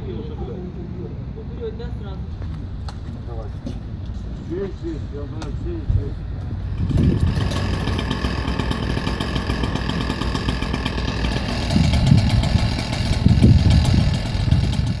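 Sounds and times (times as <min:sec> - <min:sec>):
low engine rumbles: 0:00.0 - 0:15.0
engine idling with ticking: 0:06.4 - 0:15.0.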